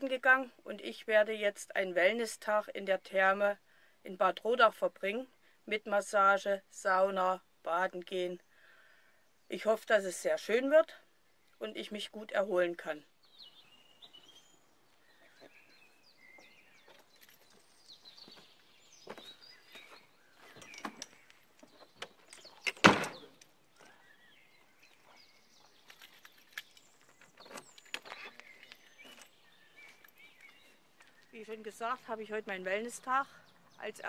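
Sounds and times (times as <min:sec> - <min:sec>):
faint birds chirping: 0:00.0 - 0:34.0
door pulled shut with a thunk: 0:22.7 - 0:23.3.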